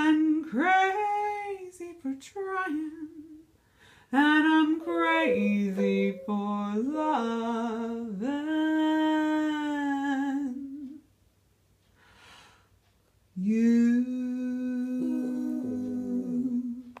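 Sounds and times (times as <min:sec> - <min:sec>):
person singing: 0:04.2 - 0:11.0, 0:13.4 - 0:17.0
dog howling: 0:04.6 - 0:07.8, 0:15.0 - 0:16.7
second wavering voice: 0:04.8 - 0:07.2, 0:14.8 - 0:16.8.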